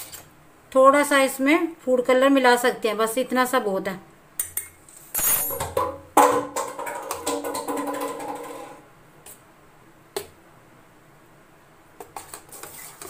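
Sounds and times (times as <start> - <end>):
spoon stirring in metal bowl: 12.0 - 13.0.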